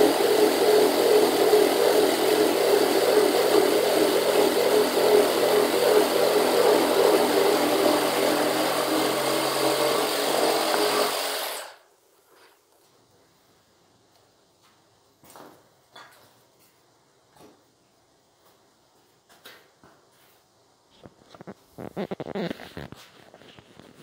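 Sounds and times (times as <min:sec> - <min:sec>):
reciprocating saw cutting wood: 0:00.0 - 0:11.8.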